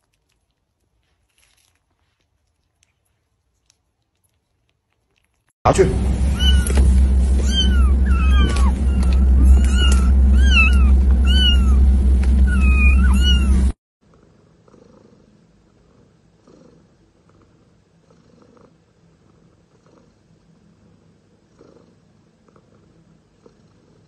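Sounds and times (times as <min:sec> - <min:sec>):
steady low rumble: 0:05.7 - 0:13.8
kittens mewing: 0:06.3 - 0:11.8, 0:12.5 - 0:13.6.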